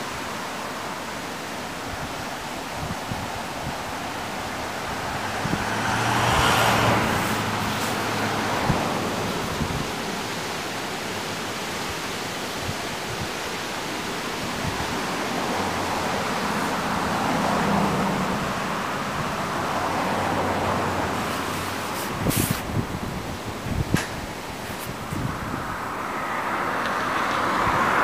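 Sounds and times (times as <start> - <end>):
river rushing through rapids: 0.0 - 28.0
wind bumps on microphone: 4.8 - 10.1, 20.9 - 25.9.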